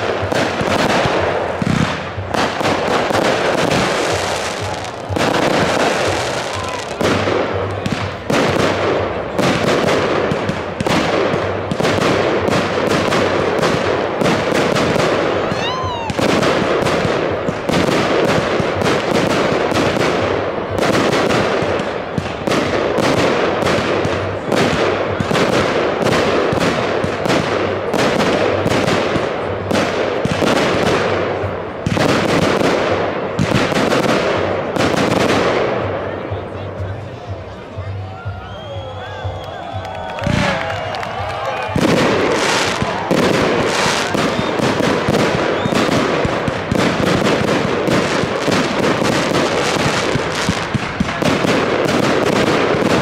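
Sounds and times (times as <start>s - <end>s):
firework batteries firing: 0.0s - 35.9s, 39.7s - 53.0s
firework whistle: 38.1s - 46.2s.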